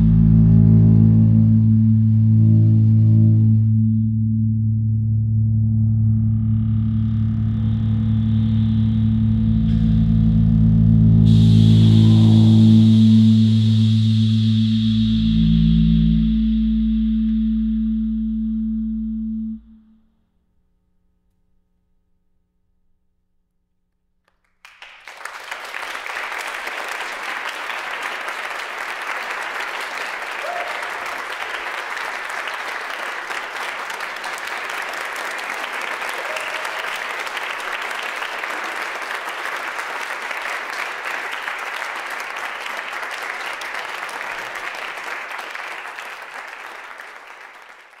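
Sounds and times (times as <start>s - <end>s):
audience applauding: 11.3s - 13.6s, 24.5s - 48.0s.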